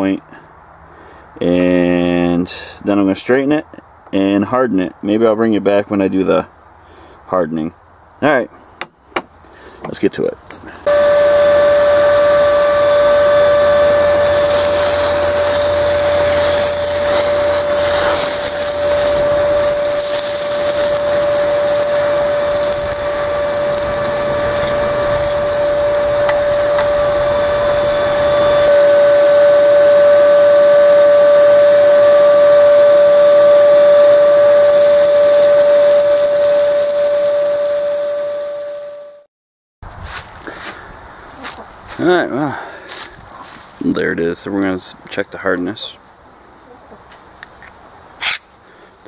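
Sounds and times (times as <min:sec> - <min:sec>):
electric blower whining: 0:10.8 - 0:39.3
rush of air: 0:10.9 - 0:37.4.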